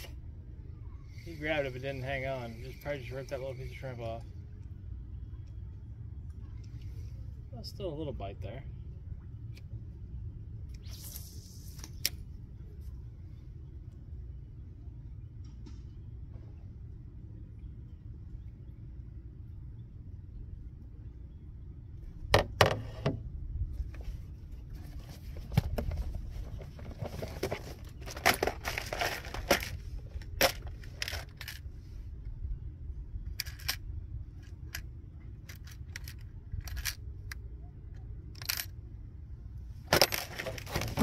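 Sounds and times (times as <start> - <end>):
steady low rumble: 0.0 - 41.0
fishing gear clicking and rustling: 24.7 - 31.8, 33.3 - 37.4, 38.2 - 38.8, 39.8 - 41.0.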